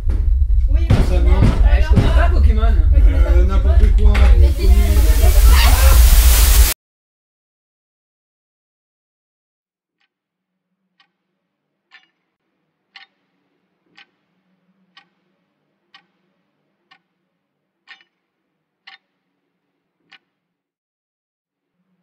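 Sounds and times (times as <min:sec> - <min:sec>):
faint low hum: 0:00.0 - 0:06.7
wristwatch ticking: 0:11.9 - 0:12.1, 0:12.9 - 0:13.2, 0:13.9 - 0:14.2, 0:14.9 - 0:15.2, 0:15.9 - 0:16.2, 0:17.8 - 0:18.2, 0:18.8 - 0:19.1.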